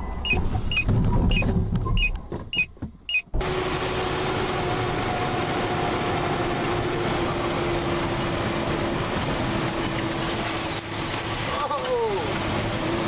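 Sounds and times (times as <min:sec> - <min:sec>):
short beeps: 0:00.0 - 0:03.4
vehicle road noise: 0:00.0 - 0:13.0.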